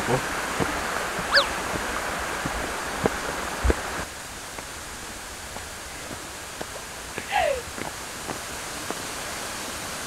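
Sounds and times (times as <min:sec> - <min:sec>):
steady rushing background noise: 0:00.0 - 0:10.0
footsteps on stone steps: 0:00.5 - 0:04.8, 0:05.4 - 0:09.1.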